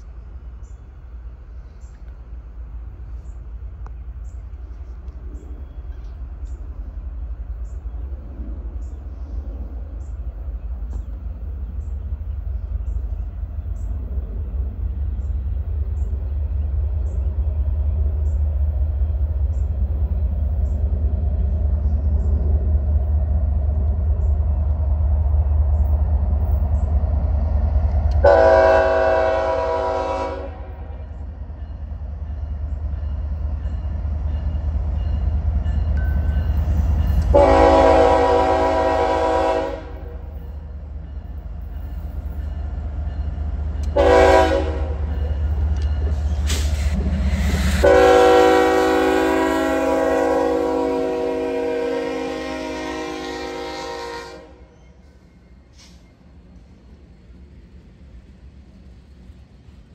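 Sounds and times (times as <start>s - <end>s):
diesel locomotive rumbling: 0.0s - 59.9s
train air horn blasts: 28.2s - 31.0s, 37.1s - 40.4s, 43.9s - 45.2s, 46.4s - 54.8s.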